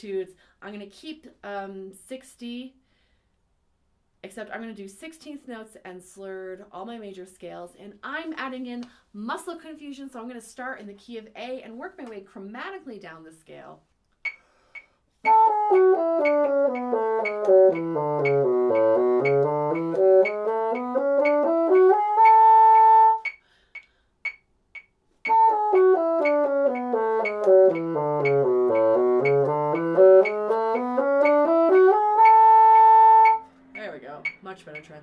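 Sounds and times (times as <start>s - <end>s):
metronome ticking: 14.2s - 35.0s
bassoon playing scale: 15.2s - 23.4s, 25.2s - 34.8s.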